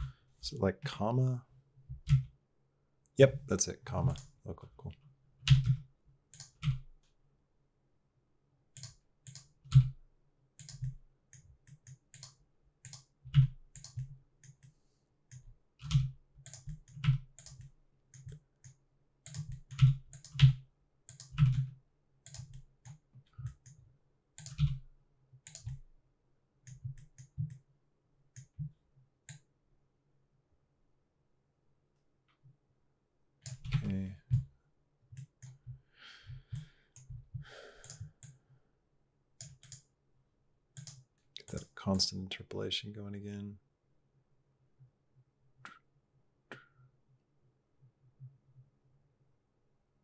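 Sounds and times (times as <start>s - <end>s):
keyboard keys and mouse clicking: 1.9s - 2.4s, 5.4s - 7.2s, 8.8s - 10.0s, 10.6s - 14.7s, 15.3s - 24.8s, 25.4s - 25.9s, 26.6s - 27.6s, 33.4s - 34.5s, 35.1s - 35.6s, 36.5s - 38.4s, 39.4s - 39.9s, 40.8s - 41.7s.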